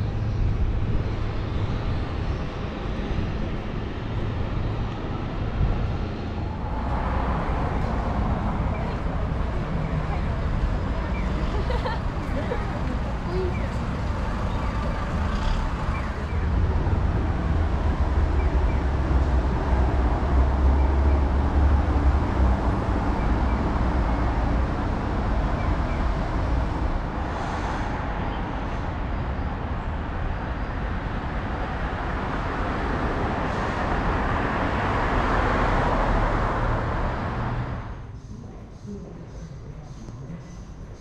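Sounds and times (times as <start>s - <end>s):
low traffic rumble: 0.0s - 41.0s
passing vehicles: 0.0s - 41.0s.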